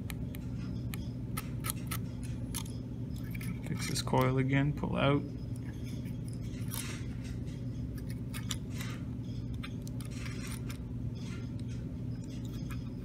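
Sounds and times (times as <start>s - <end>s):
low hum: 0.0s - 13.0s
metal tool scraping wire coil: 5.1s - 13.0s.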